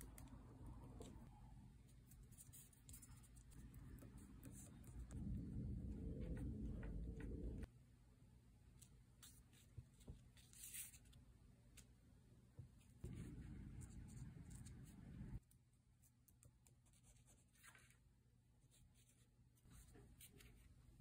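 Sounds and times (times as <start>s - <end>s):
dull low rumble: 4.2s - 7.7s.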